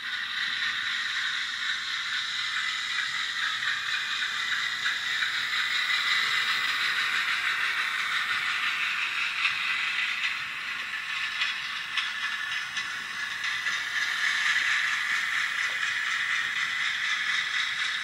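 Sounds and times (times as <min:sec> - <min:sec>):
model train wheels clattering: 0:00.0 - 0:18.0.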